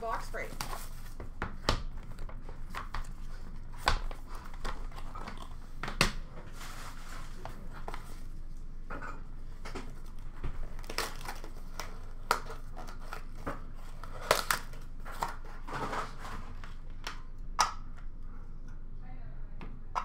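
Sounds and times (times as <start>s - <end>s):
packaging crinkling: 10.6s - 16.8s.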